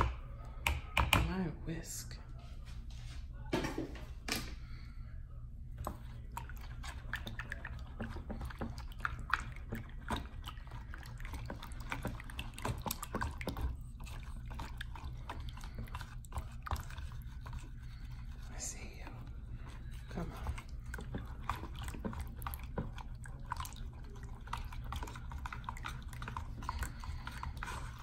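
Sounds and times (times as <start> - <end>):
whisk beating batter in bowl: 5.8 - 28.0.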